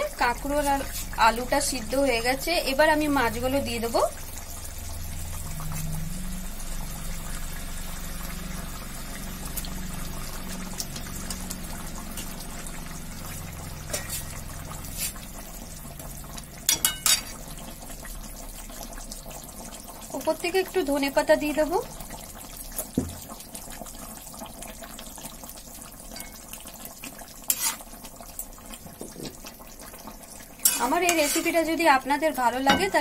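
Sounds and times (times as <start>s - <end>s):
curry bubbling: 0.0s - 33.0s
metal spatula knocking pan: 16.7s - 17.3s, 32.6s - 33.0s.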